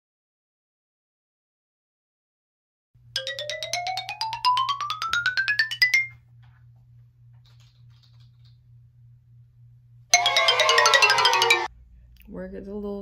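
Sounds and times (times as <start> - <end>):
faint low hum: 6.1 - 10.1, 11.6 - 13.0
bright chiming electronic tones: 10.2 - 11.7.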